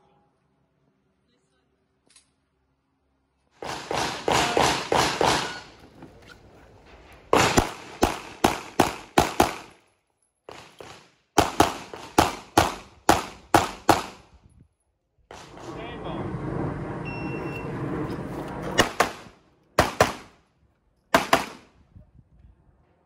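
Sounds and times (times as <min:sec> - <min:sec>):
pistol shots: 0:03.6 - 0:05.7, 0:07.3 - 0:09.8, 0:10.5 - 0:14.2, 0:18.8 - 0:20.3, 0:21.1 - 0:21.7.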